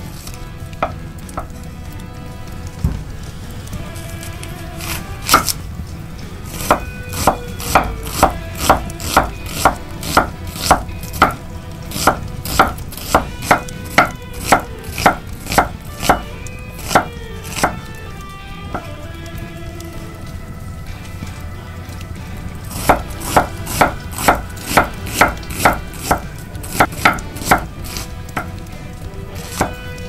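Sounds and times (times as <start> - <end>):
knife slicing onion on board: 4.8 - 5.6, 6.5 - 17.8, 22.7 - 28.0, 29.4 - 29.8.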